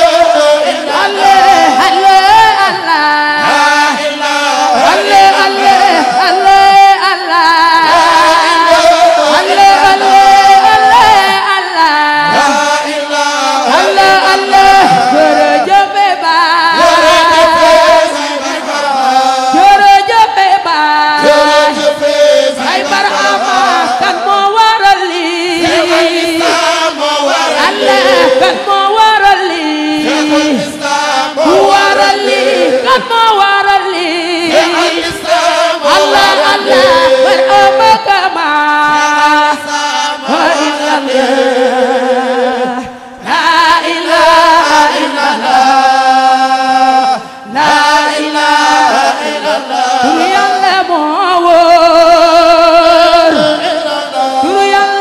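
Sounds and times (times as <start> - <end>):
choir chanting: 0.0 - 55.0
woman singing: 1.0 - 4.0, 4.8 - 12.6, 13.7 - 17.7, 19.5 - 21.8, 22.6 - 26.5, 27.6 - 30.7, 31.6 - 35.3, 35.9 - 39.7, 50.0 - 53.7, 54.4 - 55.0.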